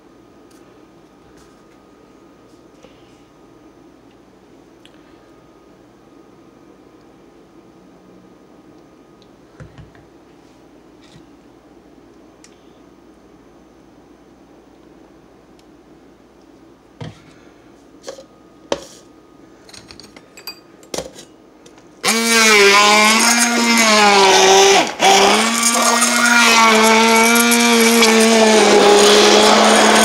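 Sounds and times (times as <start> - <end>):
immersion blender motor whining: 22.0 - 30.0.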